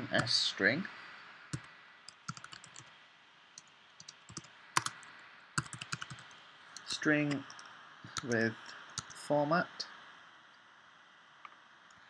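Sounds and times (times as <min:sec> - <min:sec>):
computer keyboard typing: 0:01.6 - 0:02.9, 0:03.6 - 0:09.2.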